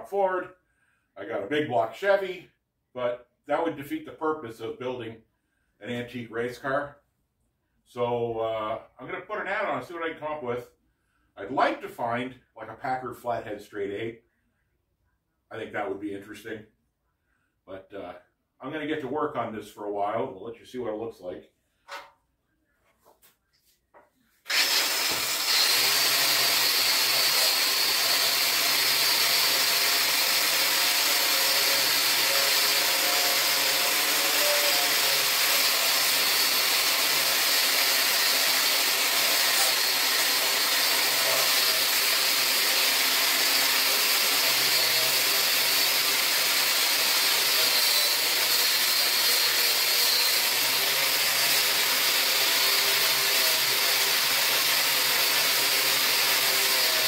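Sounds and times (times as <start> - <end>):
grinder grinding steel: 24.5 - 57.0.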